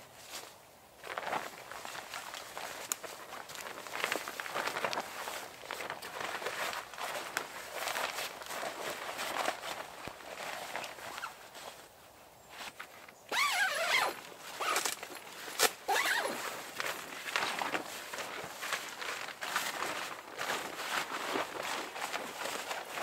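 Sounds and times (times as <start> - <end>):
footsteps in dry leaves: 0.0 - 23.0
tent fabric rustling: 0.0 - 23.0
zip being pulled: 13.3 - 15.0, 15.9 - 16.5.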